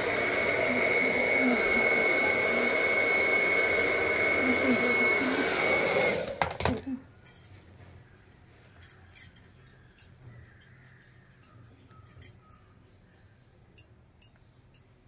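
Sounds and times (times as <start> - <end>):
hair dryer blowing: 0.0 - 6.8.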